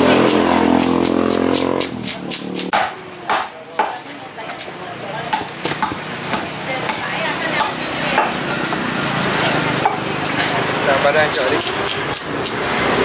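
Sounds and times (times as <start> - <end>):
scraping on chopping block: 0.0 - 3.4.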